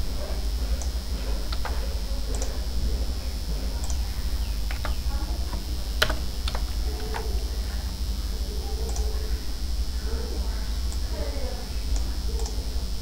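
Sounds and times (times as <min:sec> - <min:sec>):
low electrical hum: 0:00.0 - 0:13.0
computer mouse clicks: 0:00.8 - 0:02.6, 0:03.8 - 0:04.0, 0:04.7 - 0:07.3, 0:08.9 - 0:09.2, 0:11.9 - 0:12.6
keyboard taps: 0:04.7 - 0:07.2.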